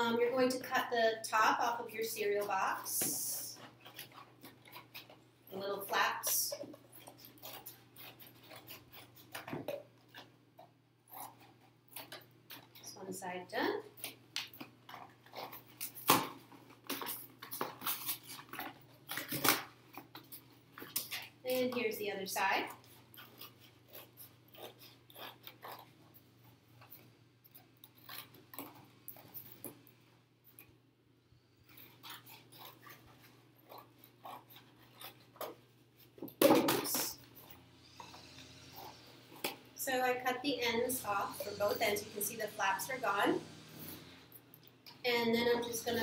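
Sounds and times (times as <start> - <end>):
scissors cutting thin cardboard: 5.9 - 10.3, 22.6 - 25.9, 31.7 - 38.3.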